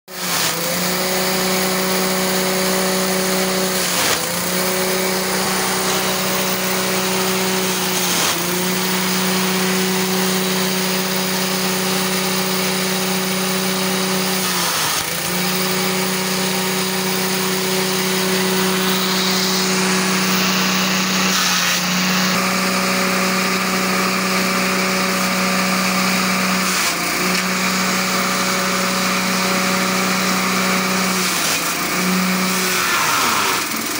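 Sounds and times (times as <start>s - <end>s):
grass chopper engine running: 0.1s - 33.9s.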